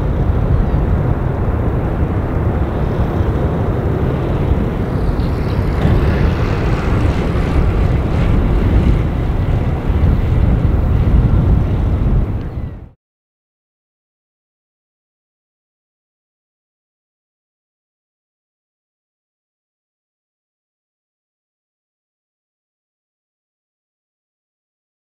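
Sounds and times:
jet engines deep roar: 0:00.0 - 0:13.0.

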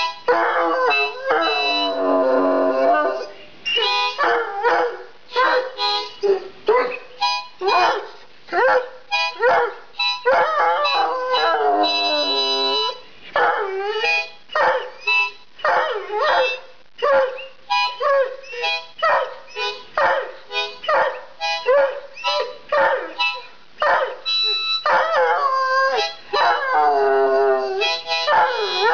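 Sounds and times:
music: 0:00.0 - 0:02.7, 0:03.7 - 0:04.7, 0:05.3 - 0:06.3, 0:07.1 - 0:07.9, 0:09.0 - 0:13.1, 0:13.8 - 0:15.5, 0:17.4 - 0:28.9
dog howling: 0:00.3 - 0:03.4, 0:07.6 - 0:14.9, 0:24.9 - 0:28.9.

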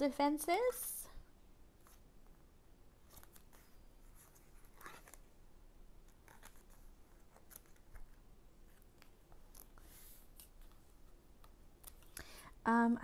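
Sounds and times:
soft papery brush: 0:03.0 - 0:05.3, 0:06.1 - 0:11.2.

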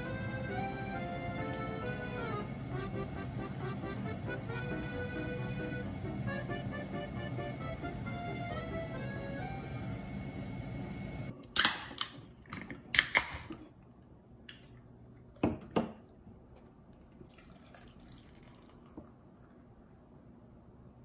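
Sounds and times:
background music: 0:00.0 - 0:11.2
steady high whine: 0:00.0 - 0:11.5.

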